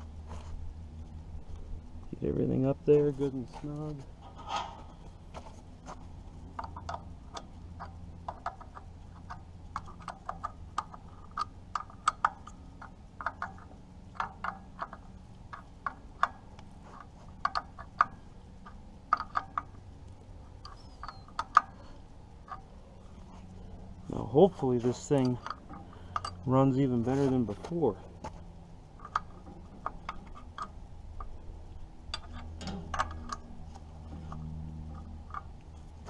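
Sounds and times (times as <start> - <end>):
ratcheting wrench clicking: 6.6 - 19.8.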